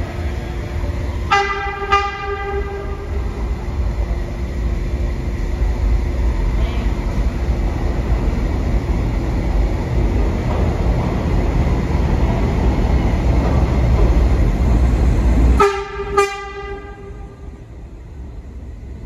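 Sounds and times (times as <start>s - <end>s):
subway train rumbling: 0.0s - 19.0s
train horn blasts: 1.3s - 3.1s, 15.6s - 17.5s.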